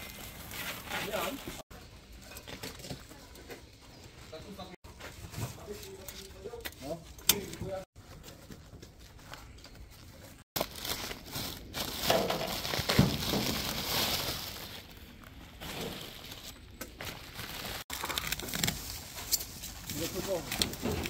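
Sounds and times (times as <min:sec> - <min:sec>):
plastic packaging crinkling: 0:10.6 - 0:19.2.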